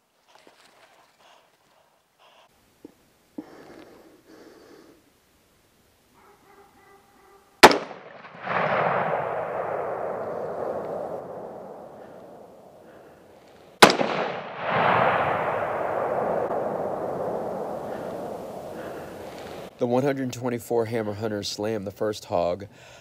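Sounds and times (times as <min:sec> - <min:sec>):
rifle shot crack: 0:07.6 - 0:13.1, 0:13.8 - 0:19.7
long rumbling echo: 0:07.7 - 0:13.2, 0:13.8 - 0:19.7.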